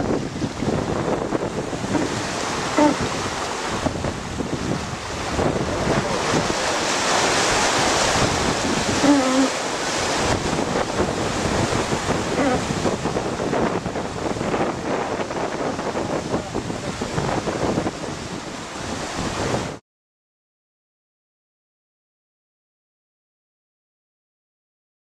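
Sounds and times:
churning wake water: 0:00.0 - 0:19.8
wind buffeting microphone: 0:00.0 - 0:19.8.

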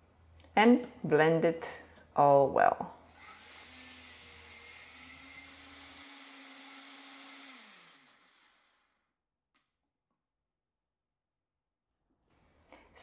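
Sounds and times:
blender motor running: 0:03.1 - 0:09.2.

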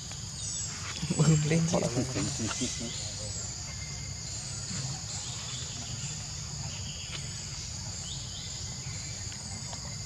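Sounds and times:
insects chorus: 0:00.0 - 0:10.0.

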